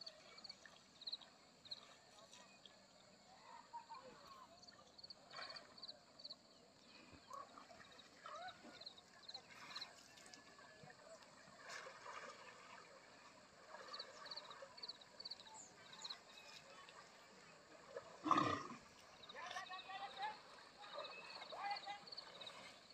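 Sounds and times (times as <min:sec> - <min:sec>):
water trickling: 0:07.4 - 0:22.9.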